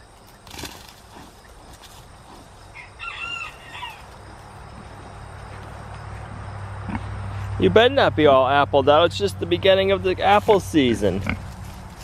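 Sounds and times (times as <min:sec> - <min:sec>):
rooster crowing: 0:02.7 - 0:04.3.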